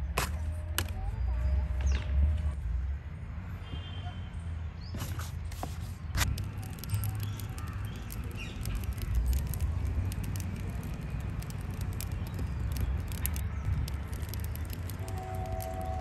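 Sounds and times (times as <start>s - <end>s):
steady low rumble: 6.2s - 16.0s.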